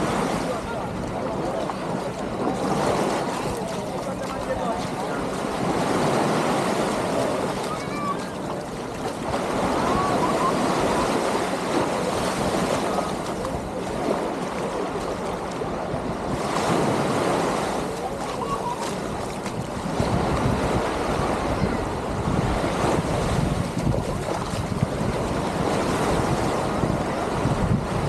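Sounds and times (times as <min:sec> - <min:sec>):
small waves breaking on shore: 0:00.0 - 0:28.0
wind buffeting microphone: 0:00.0 - 0:28.0.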